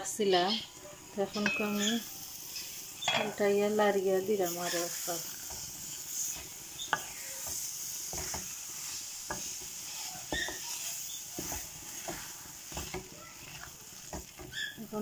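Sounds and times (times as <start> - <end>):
food sizzling: 0.0 - 15.0
spatula scraping metal pan: 4.4 - 15.0.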